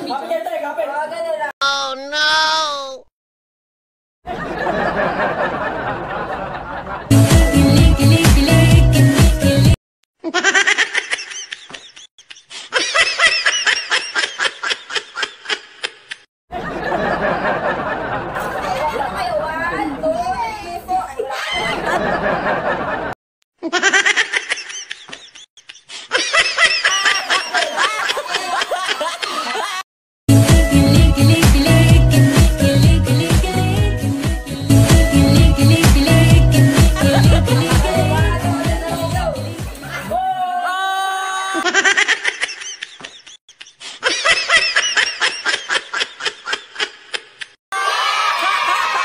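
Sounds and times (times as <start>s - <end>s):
people laughing: 4.3s - 7.3s, 10.3s - 20.0s, 21.2s - 29.8s, 36.6s - 40.5s, 41.5s - 49.0s.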